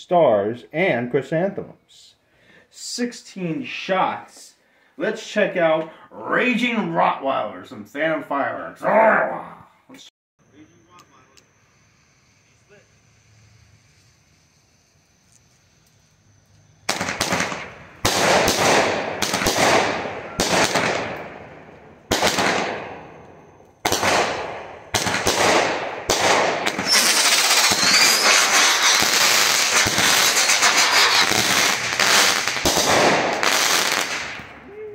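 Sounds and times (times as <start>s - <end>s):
firework crackle: 10.6s - 34.8s
firework shots with hiss: 11.1s - 34.6s.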